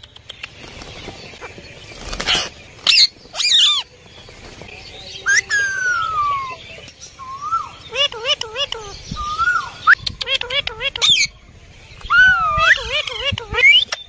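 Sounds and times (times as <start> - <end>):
wings fluttering: 0.0 - 4.9
parakeets calling: 0.4 - 4.2, 4.8 - 14.0.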